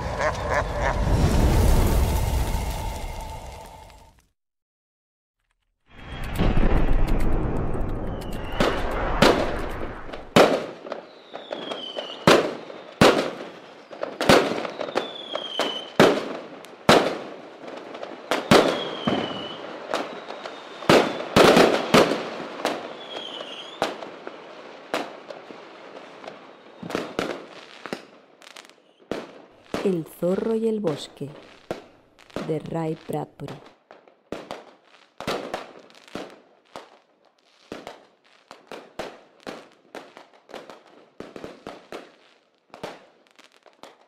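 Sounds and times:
firework deep boom: 0:00.0 - 0:04.0, 0:06.0 - 0:10.6
firework sharp bangs: 0:06.0 - 0:28.2, 0:33.6 - 0:37.0
firework whistles dropping in pitch: 0:08.0 - 0:09.0.

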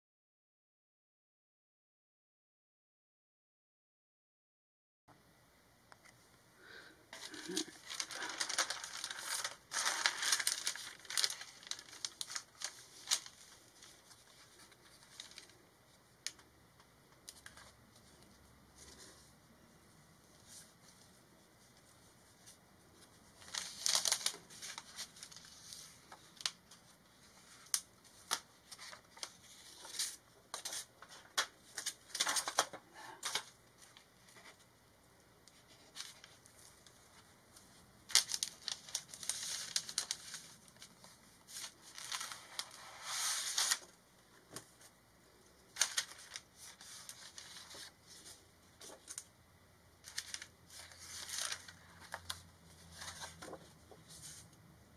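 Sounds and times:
paper rustling and sliding: 0:07.2 - 0:15.6, 0:20.3 - 0:34.7, 0:35.5 - 0:44.9, 0:45.7 - 0:49.3, 0:50.0 - 0:54.6.

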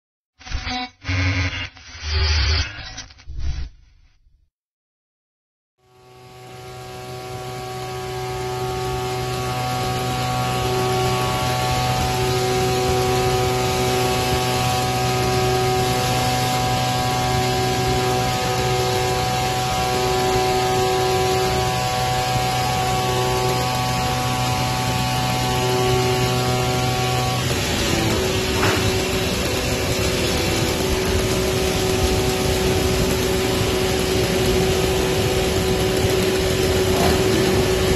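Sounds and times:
higher pulsing tone: 0:00.4 - 0:04.3
engine test bench humming: 0:05.8 - 0:37.9.

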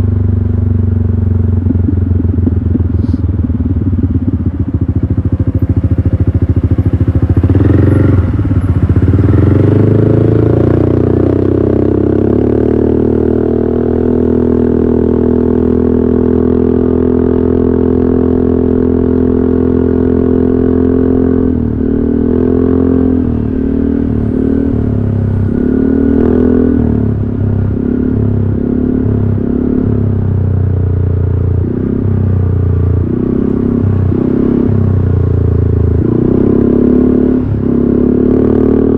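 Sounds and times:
scooter engine revving: 0:01.2 - 0:13.1.

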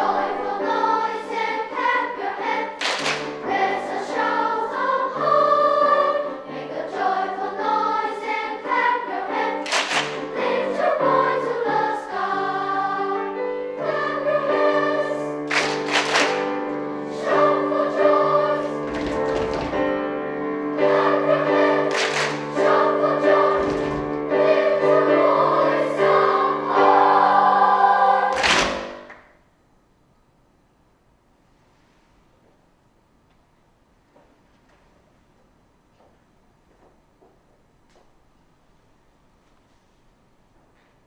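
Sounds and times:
children's choir singing in parts: 0:00.0 - 0:29.2.

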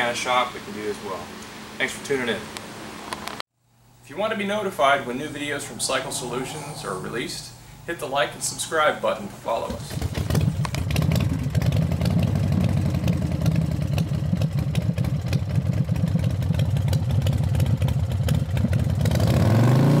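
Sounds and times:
motorcycle engine revving: 0:09.7 - 0:20.0.

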